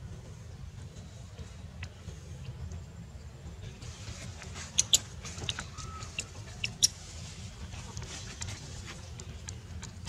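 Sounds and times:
baby monkeys squealing: 4.7s - 7.0s.

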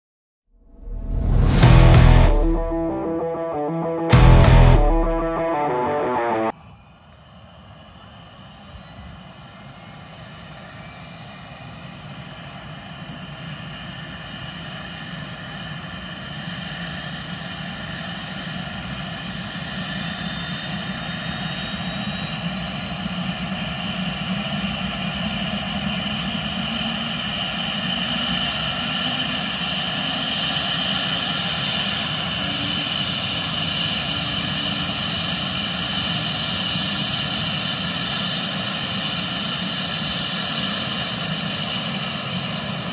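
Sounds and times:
low rumble: 0.6s - 5.4s.

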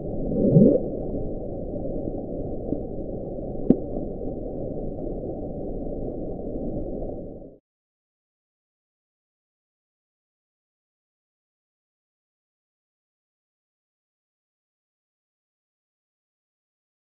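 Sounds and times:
low rumbling ocean hiss: 0.0s - 7.6s.

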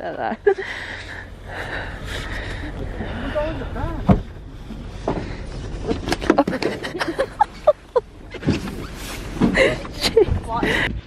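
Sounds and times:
clothing rustling against microphone: 8.3s - 10.2s.

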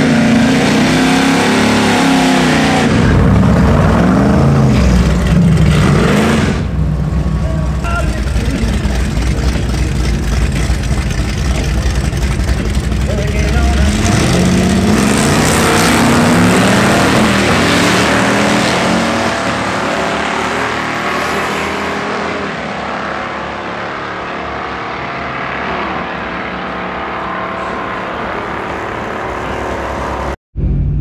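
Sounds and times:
car engine launching hard: 0.0s - 21.0s.

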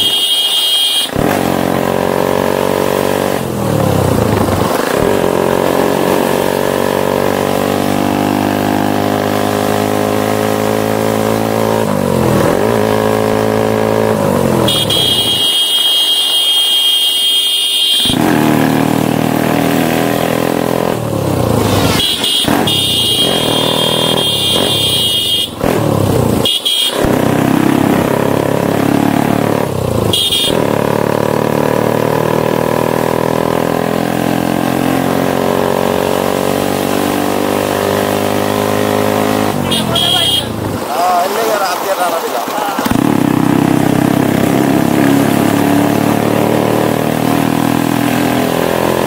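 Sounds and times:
vehicle horn: 0.0s - 1.2s, 14.6s - 18.4s, 21.8s - 25.6s, 26.4s - 27.2s, 30.1s - 30.8s, 38.9s - 40.6s
motorcycle engine running: 17.7s - 33.6s, 42.8s - 49.0s.

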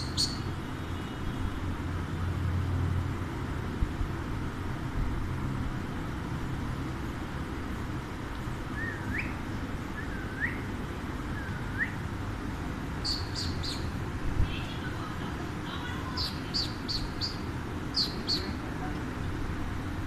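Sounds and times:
parakeets whistling and chirping: 0.0s - 0.5s, 8.7s - 9.4s, 10.0s - 10.7s, 11.3s - 12.0s, 13.0s - 13.9s, 16.0s - 18.6s
steady low rumble: 3.0s - 20.0s.

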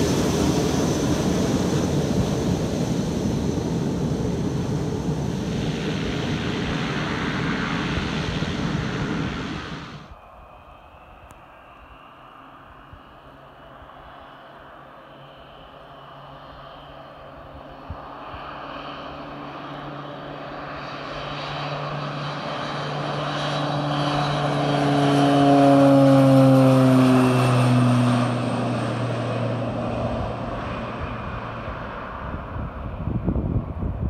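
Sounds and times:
turboprop plane passing: 0.0s - 34.0s
wind buffeting microphone: 28.8s - 34.0s.

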